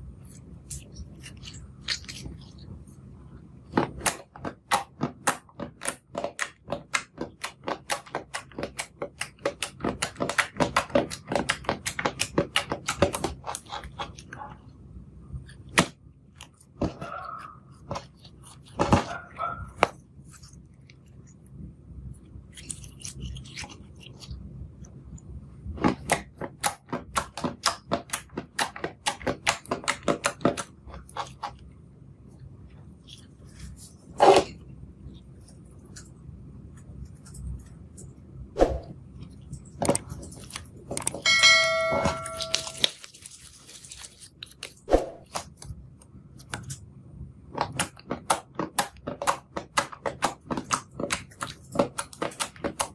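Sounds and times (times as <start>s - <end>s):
slime squeaks: 0.2s - 3.0s.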